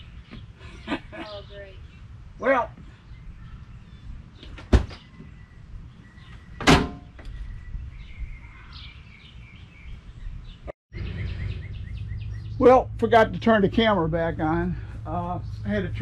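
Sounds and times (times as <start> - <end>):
small birds chirping: 0.0 - 16.0
sharp knocks: 6.6 - 7.2
low outdoor rumble: 10.5 - 16.0.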